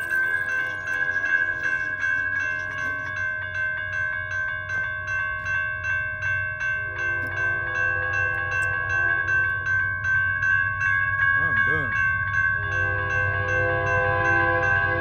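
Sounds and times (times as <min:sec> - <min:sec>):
crossing warning bell ringing: 0:00.0 - 0:15.0
distant train horn: 0:12.6 - 0:15.0.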